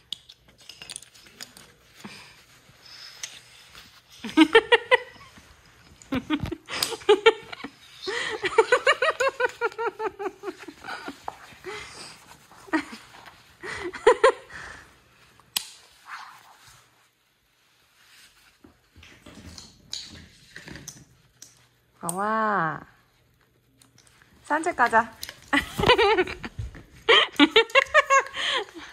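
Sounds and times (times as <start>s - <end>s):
woman laughing: 4.2s - 14.7s, 25.5s - 28.9s.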